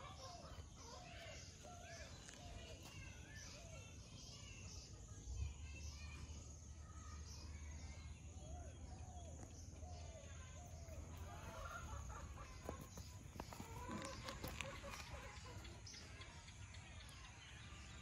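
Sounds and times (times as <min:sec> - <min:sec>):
birds calling: 0:07.0 - 0:18.0.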